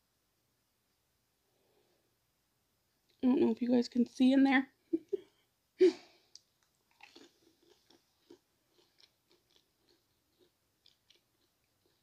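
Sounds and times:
close-up chewing clicks: 6.3 - 12.0.

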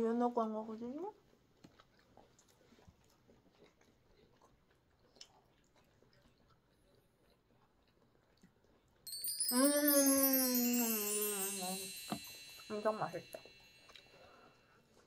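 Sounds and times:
faint chewing: 1.1 - 9.0
bright chime sound effect: 9.1 - 14.4.

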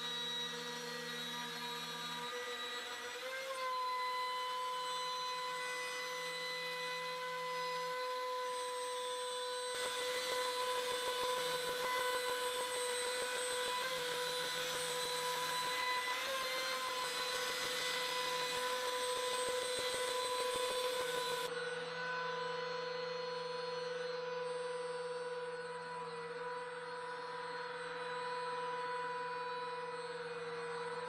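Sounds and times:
bit cutting plywood: 0.0 - 21.5
router spindle whine: 0.0 - 31.0.

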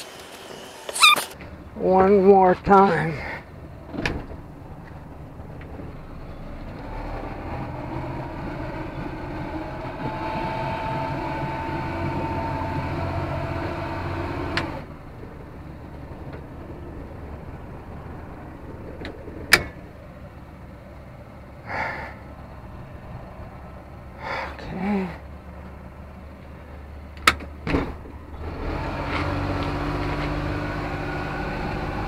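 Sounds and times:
outboard motor running: 6.8 - 19.6.

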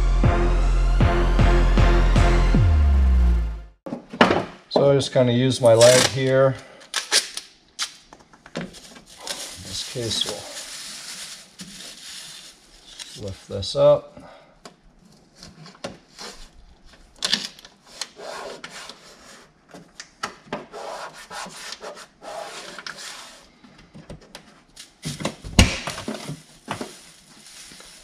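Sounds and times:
hands rubbing plastic and tape: 6.9 - 13.5, 15.0 - 23.6, 24.3 - 28.0.

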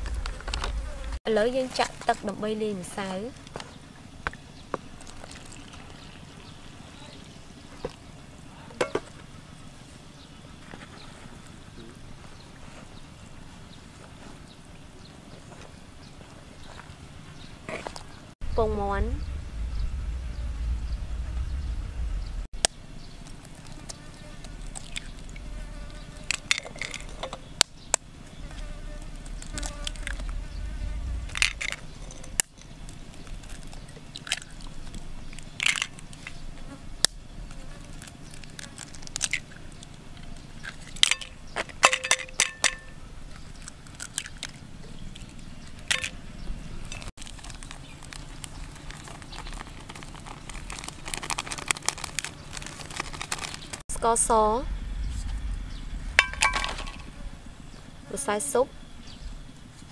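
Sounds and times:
low steady buzz: 0.0 - 1.6, 18.4 - 38.5, 53.9 - 59.9
eggshells cracking on bowl rim: 23.3 - 25.4
powder shaken from paper packet: 47.2 - 53.8.

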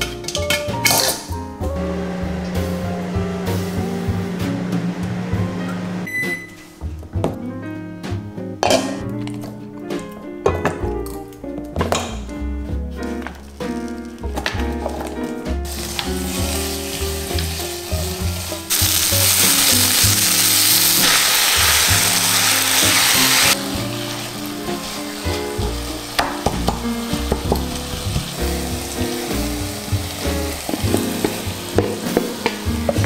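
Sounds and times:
peppers sizzling in frying pan: 13.4 - 33.0.

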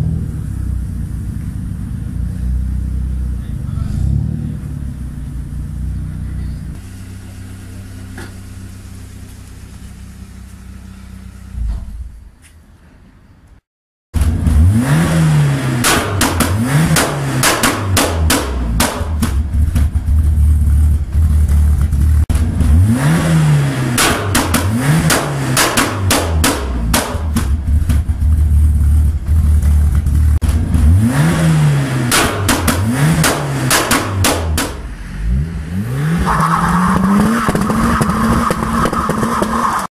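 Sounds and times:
rally car engine revving: 0.0 - 6.8, 14.2 - 39.9
exhaust bangs and pops: 14.2 - 35.0, 36.0 - 39.9.

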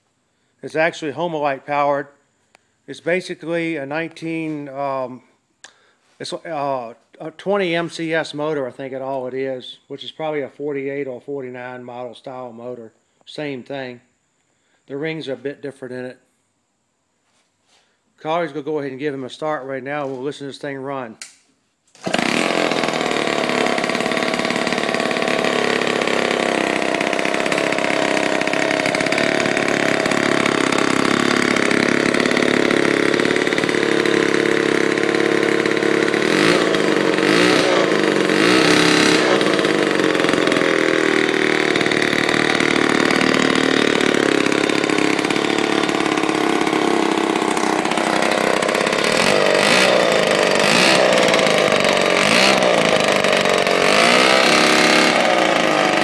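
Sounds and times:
chainsaw engine revving: 3.0 - 5.2, 21.9 - 56.0.

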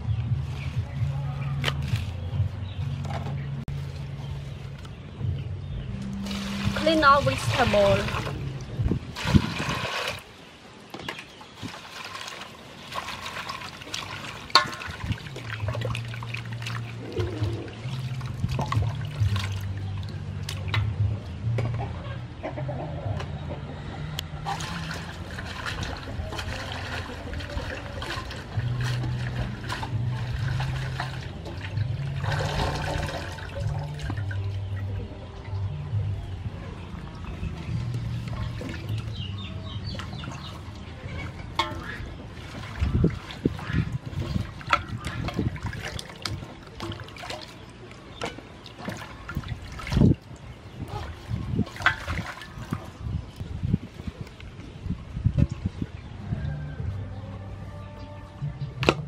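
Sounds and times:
water sloshing in a metal basin: 6.0 - 21.4, 24.4 - 55.8.

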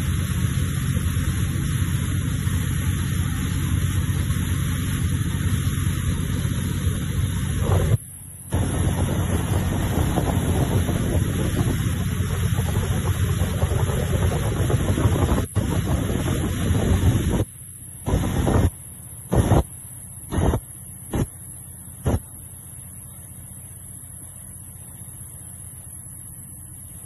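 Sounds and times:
boat engine and spray rumble: 0.0 - 27.0
wind on microphone: 7.5 - 17.5, 18.1 - 18.7.

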